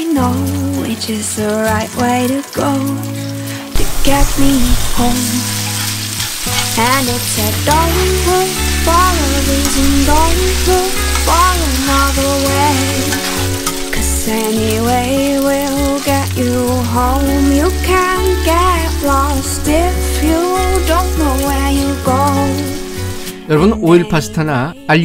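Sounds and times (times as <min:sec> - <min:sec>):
food sizzling in oil: 0:00.0 - 0:23.5
background music with bass: 0:00.0 - 0:25.0
metal tongs tossing food: 0:05.0 - 0:22.7.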